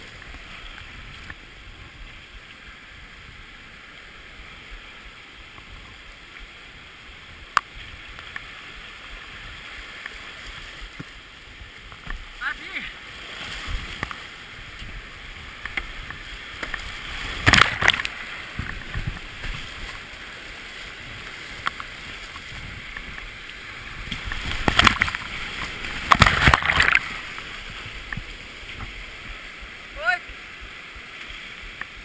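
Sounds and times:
whitewater rushing: 0:00.0 - 0:32.0
loud water splashes: 0:12.2 - 0:30.4.

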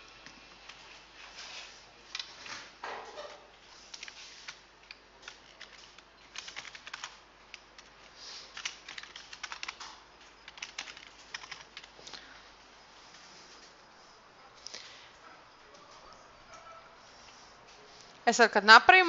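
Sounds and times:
computer keyboard typing: 0:03.9 - 0:12.0.

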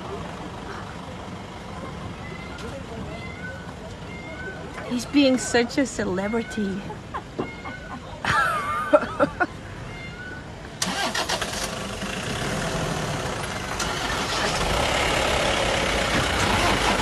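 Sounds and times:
jeep engine starting and running: 0:00.0 - 0:03.0, 0:10.6 - 0:17.0.

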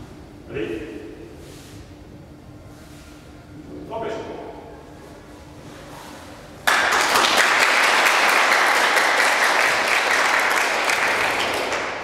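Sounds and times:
small group applauding: 0:06.6 - 0:12.0.

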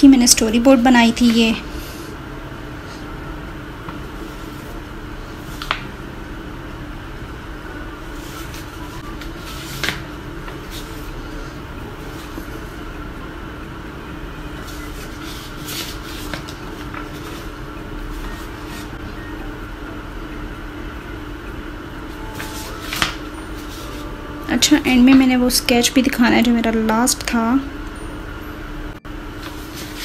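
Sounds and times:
low background hum: 0:00.0 - 0:30.0
paper sheets shuffling: 0:08.1 - 0:11.5, 0:14.6 - 0:19.0, 0:22.4 - 0:24.1, 0:29.4 - 0:30.0.

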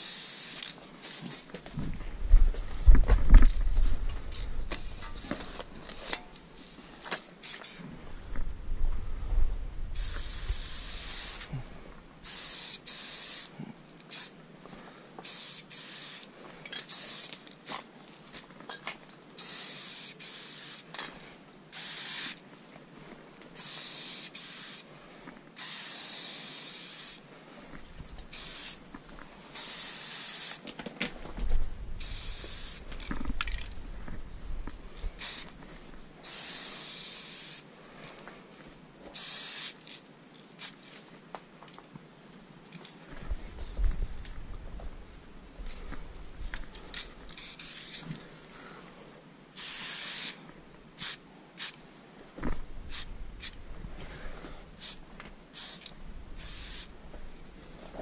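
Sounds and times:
spray paint cans hissing: 0:00.0 - 0:01.5, 0:07.4 - 0:07.8, 0:10.0 - 0:11.6, 0:12.2 - 0:13.5, 0:14.1 - 0:14.4, 0:15.2 - 0:18.5, 0:19.4 - 0:20.9, 0:21.7 - 0:22.4, 0:23.6 - 0:24.9, 0:25.6 - 0:27.2, 0:28.2 - 0:28.8, 0:29.5 - 0:30.6, 0:32.0 - 0:33.7, 0:35.2 - 0:35.6, 0:36.2 - 0:37.6, 0:39.1 - 0:40.0, 0:40.6 - 0:40.8, 0:47.4 - 0:48.1, 0:49.6 - 0:50.4, 0:51.0 - 0:51.8, 0:52.9 - 0:53.6, 0:54.8 - 0:56.9
low rumble: 0:08.0 - 0:10.0.

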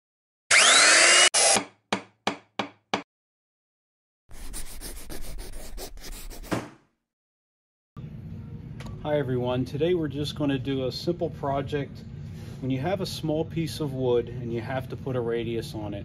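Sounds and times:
power tool cutting: 0:00.5 - 0:01.7.

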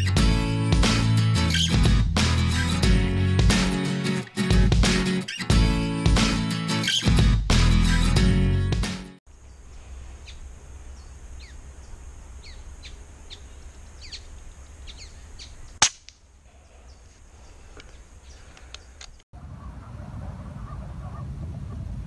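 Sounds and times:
birds chirping: 0:01.4 - 0:01.8, 0:05.1 - 0:05.8, 0:06.7 - 0:07.2, 0:09.3 - 0:20.0
air rifle shot: 0:15.8 - 0:16.1.

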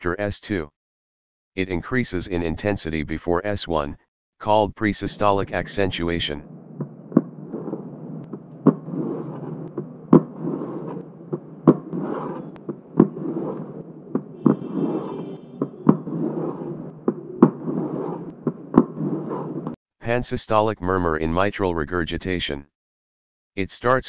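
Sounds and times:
pen scraping on cardboard: 0:07.2 - 0:19.8
sharp taps on cardboard: 0:08.3 - 0:13.6.

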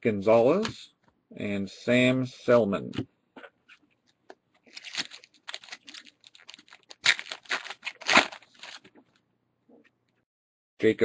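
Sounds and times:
foil wrapper crinkling and tearing: 0:04.6 - 0:09.0.

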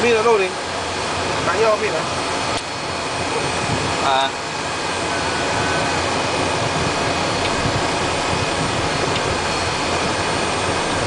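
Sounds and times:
jet engines running with whine: 0:00.0 - 0:11.0.

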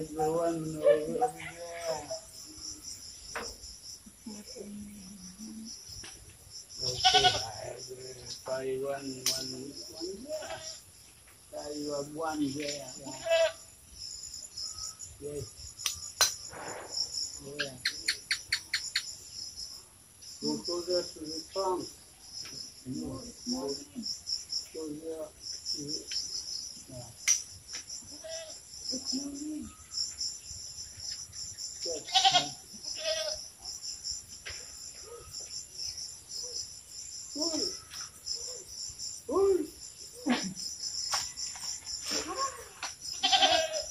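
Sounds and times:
insects chirping: 0:00.0 - 0:43.9
wavering animal calls: 0:10.2 - 0:10.8, 0:42.2 - 0:43.9.

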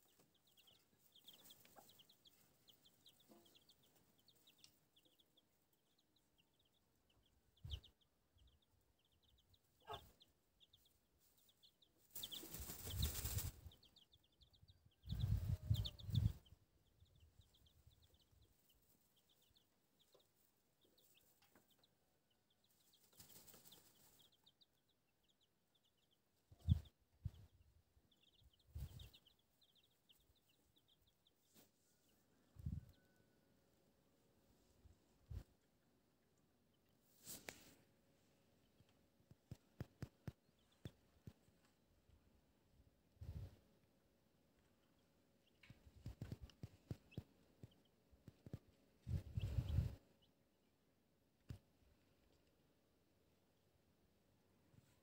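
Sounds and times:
chicks peeping: 0:00.0 - 0:50.8, 0:51.4 - 0:55.0
rustling noise: 0:11.2 - 0:13.9, 0:37.1 - 0:37.8.

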